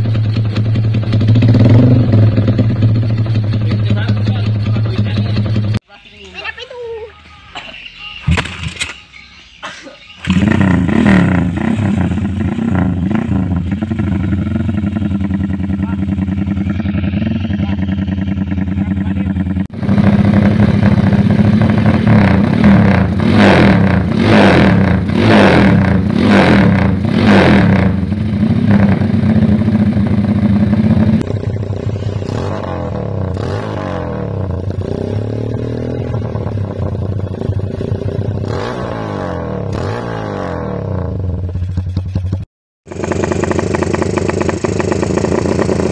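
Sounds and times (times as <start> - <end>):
motorcycle engine idling: 0.0 - 5.8, 10.2 - 23.2, 27.8 - 33.4, 41.2 - 45.9
motorcycle engine revving: 0.0 - 5.8, 10.2 - 45.9.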